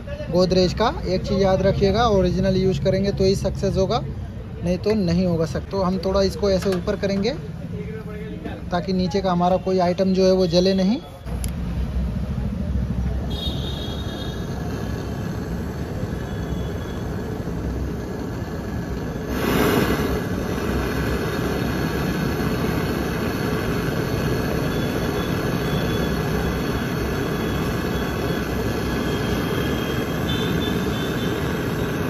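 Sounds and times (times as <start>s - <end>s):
gas torch flame hissing: 8.9s - 32.0s.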